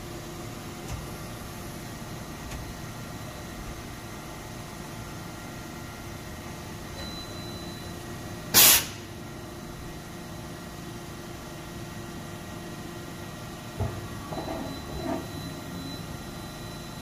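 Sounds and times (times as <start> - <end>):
machine running hum: 0.0 - 17.0
compressed air hiss: 8.6 - 9.0.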